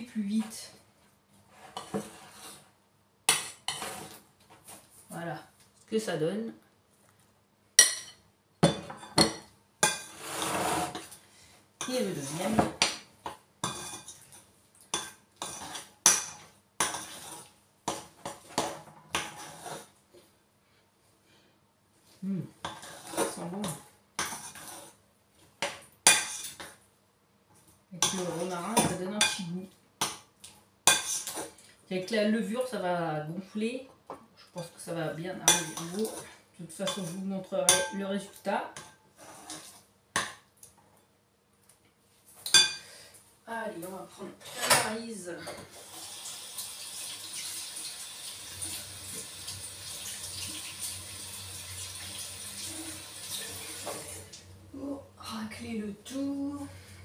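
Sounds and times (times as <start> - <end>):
utensil scraping glass bowl: 1.5 - 2.7, 3.7 - 4.2, 9.8 - 11.2, 16.8 - 17.5, 19.2 - 19.9, 22.6 - 25.0, 39.2 - 39.8.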